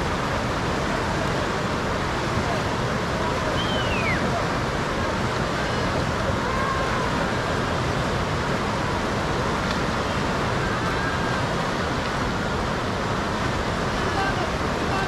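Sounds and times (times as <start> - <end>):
river rushing: 0.0 - 15.0.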